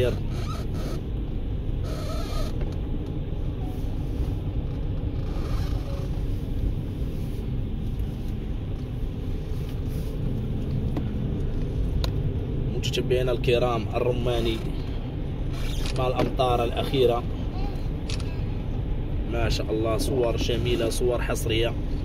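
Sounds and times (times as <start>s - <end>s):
car engine and tyre rumble: 0.0s - 22.0s.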